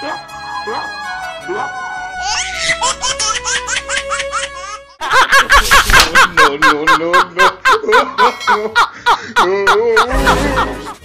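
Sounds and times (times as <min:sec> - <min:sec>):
rhythmic laughter: 0:02.2 - 0:11.0.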